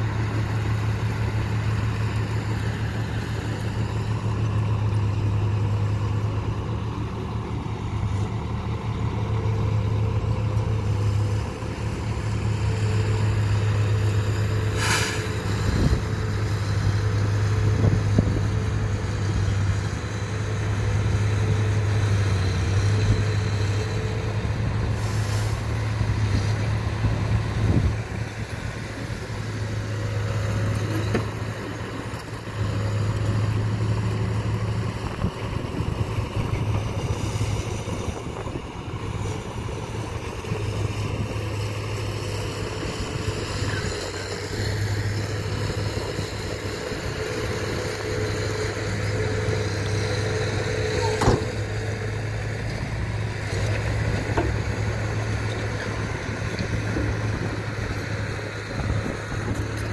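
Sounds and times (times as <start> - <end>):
diesel truck engine running: 0.0 - 59.9
short hydraulic hisses: 14.7 - 15.4, 25.0 - 25.6.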